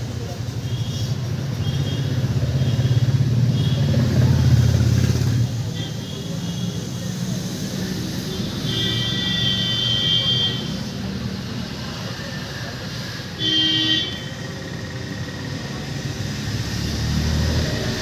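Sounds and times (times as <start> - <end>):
road traffic passing: 0.0 - 18.0
vehicle horn honking: 8.5 - 10.8, 13.4 - 14.4.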